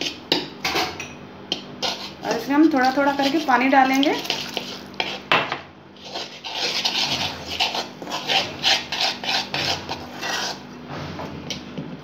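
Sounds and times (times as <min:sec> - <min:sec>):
spoon scraping metal bowl: 0:00.0 - 0:05.4, 0:06.0 - 0:10.7.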